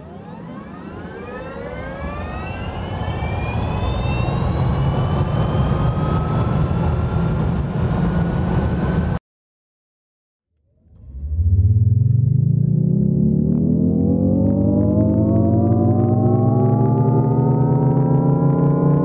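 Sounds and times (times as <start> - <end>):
electric car whine rising in pitch: 0.0 - 9.2, 10.7 - 19.0
low rumble: 10.6 - 19.0.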